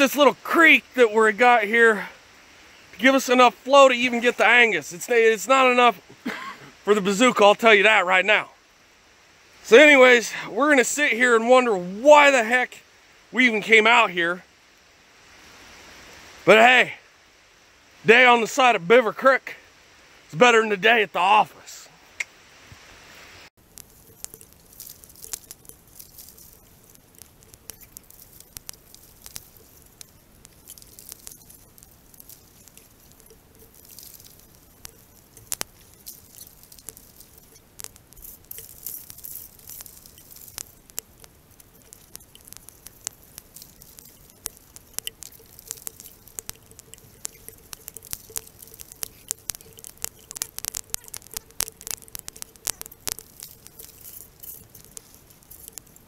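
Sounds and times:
water trickling: 0.0s - 7.6s, 23.5s - 56.0s
sharp water drips: 0.0s - 8.0s, 23.5s - 56.0s.

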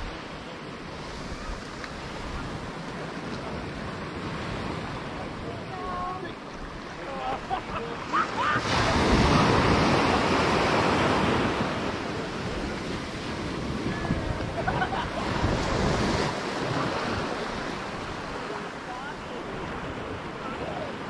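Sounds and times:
waves breaking on a beach: 0.0s - 21.0s.

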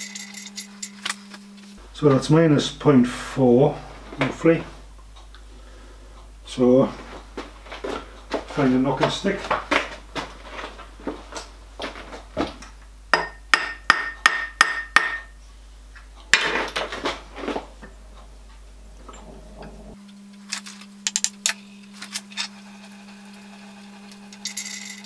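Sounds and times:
mallet tapping metal casting: 13.1s - 15.4s.

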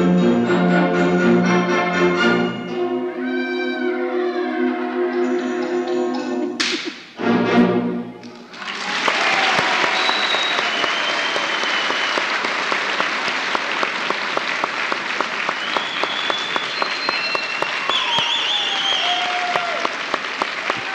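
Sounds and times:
audience clapping: 8.2s - 20.9s
high whistles: 9.7s - 12.4s, 15.5s - 19.6s.

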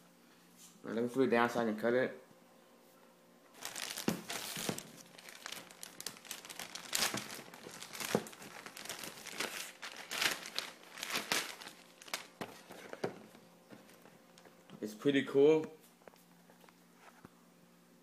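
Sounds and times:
plastic bag crinkling: 3.5s - 14.8s.

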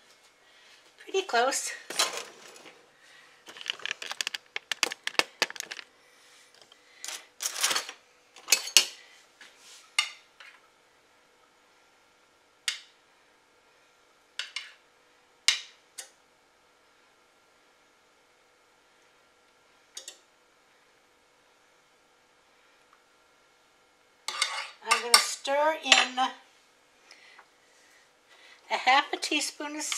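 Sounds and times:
utensils clinking: 3.5s - 5.9s, 7.0s - 8.9s.

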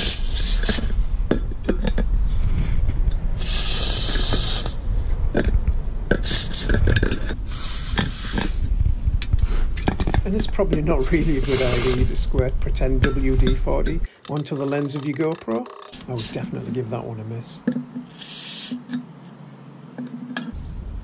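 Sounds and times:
aerosol spray hissing: 11.2s - 12.1s
can and tools knocking: 13.0s - 16.0s.

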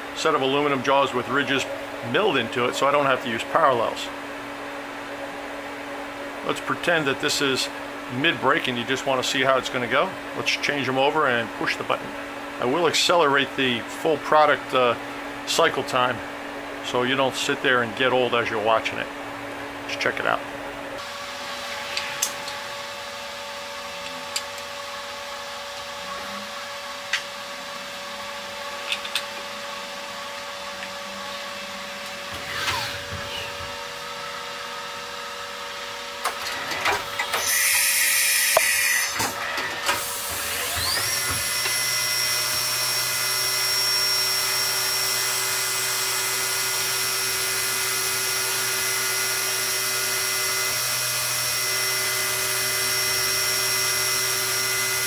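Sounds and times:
machine hum: 0.0s - 37.7s, 38.3s - 55.0s
spindle high whine: 21.0s - 23.2s.

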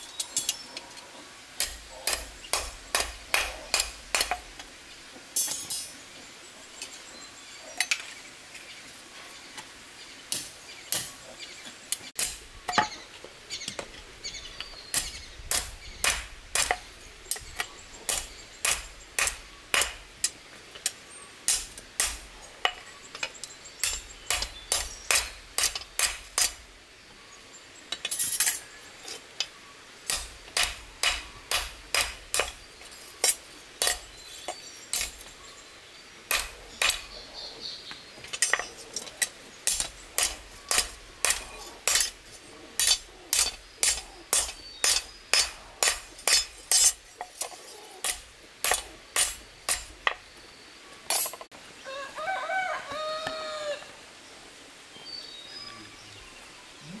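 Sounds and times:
hammer striking steel bar: 1.6s - 4.4s, 15.0s - 16.8s, 18.1s - 20.0s, 21.5s - 22.8s, 23.8s - 26.6s, 30.1s - 32.6s, 36.3s - 37.1s, 39.7s - 42.1s, 42.8s - 47.0s.

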